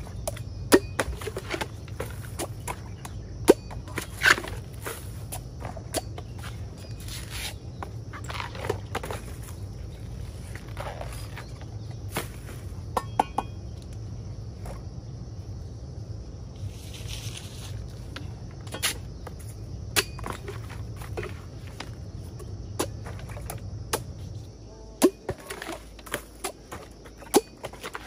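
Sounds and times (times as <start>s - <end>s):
rustling husks and dry leaves: 1.0s - 12.9s, 16.4s - 28.0s
machete chopping bamboo: 25.0s - 26.6s, 27.2s - 28.0s.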